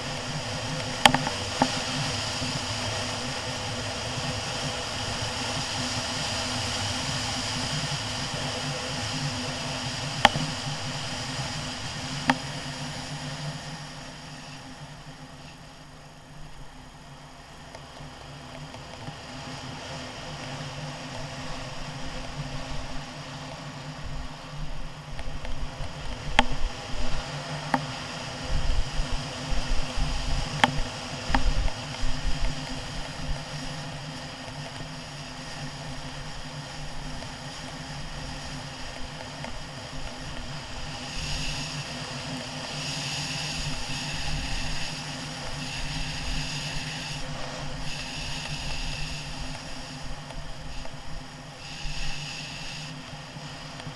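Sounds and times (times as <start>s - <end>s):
scooter engine running: 0.0s - 16.4s, 17.1s - 53.9s
loud hiss: 39.7s - 53.7s.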